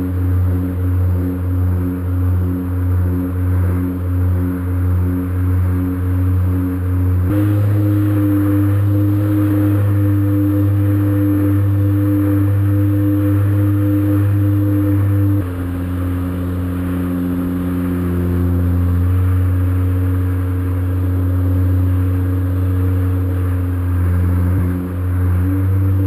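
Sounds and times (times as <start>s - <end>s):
low sustained synth chords: 0.0s - 26.0s.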